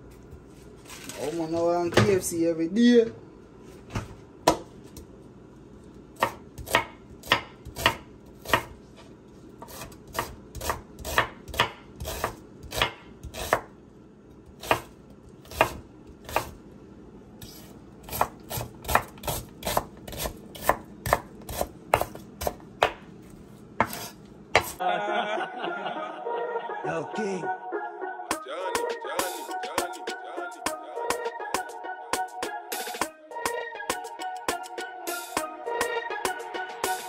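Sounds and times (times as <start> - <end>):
knife chopping on cutting board: 4.4 - 4.7, 6.2 - 8.8, 9.6 - 13.7, 14.5 - 16.6, 17.4 - 23.1, 23.8 - 24.8.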